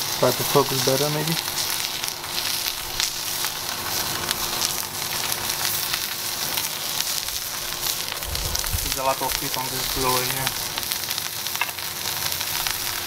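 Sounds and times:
steak sizzling in a skillet: 0:00.0 - 0:13.0.

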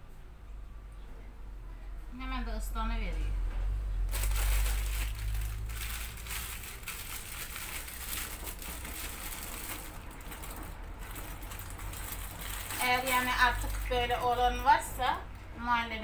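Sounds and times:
plastic wrapper crackling: 0:04.1 - 0:14.7.

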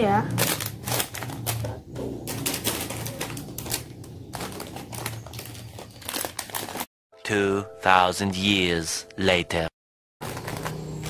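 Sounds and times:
plastic bags crinkling and clicking: 0:00.3 - 0:06.9, 0:10.2 - 0:11.0.

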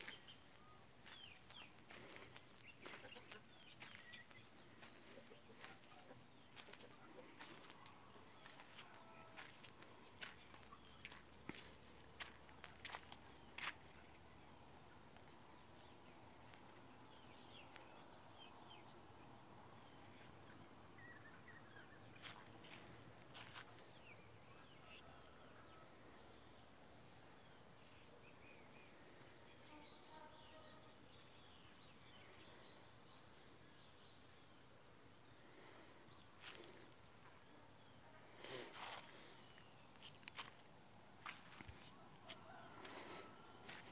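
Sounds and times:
footsteps on dry ground: 0:00.0 - 0:13.9, 0:22.2 - 0:23.8, 0:38.5 - 0:43.9
faint bird chirps: 0:00.0 - 0:34.5
insect trill: 0:00.0 - 0:43.9.

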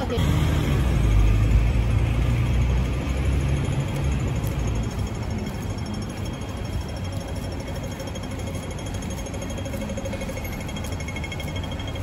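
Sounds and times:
low rumble of traffic: 0:00.0 - 0:12.0.

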